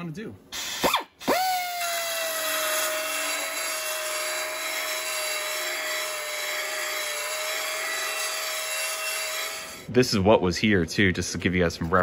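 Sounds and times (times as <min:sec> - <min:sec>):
belt sander whining: 0:01.2 - 0:09.9.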